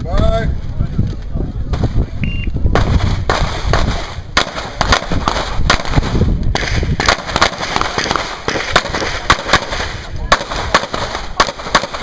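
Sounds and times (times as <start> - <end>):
pistol shots: 2.8 - 12.0.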